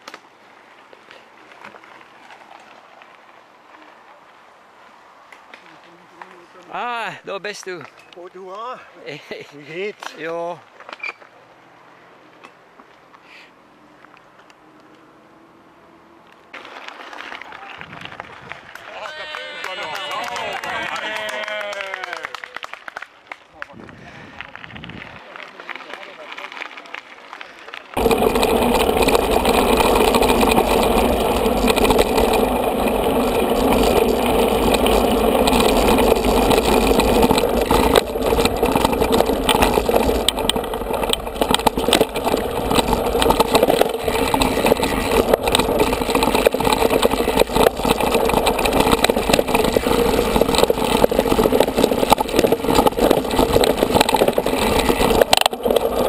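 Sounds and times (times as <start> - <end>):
bike rattling over rough trail: 0.0 - 4.5, 24.2 - 56.0.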